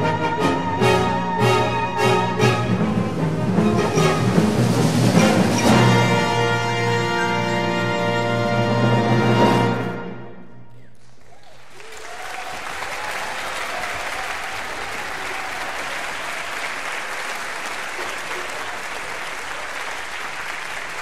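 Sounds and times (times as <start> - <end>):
audience applauding: 10.9 - 21.0.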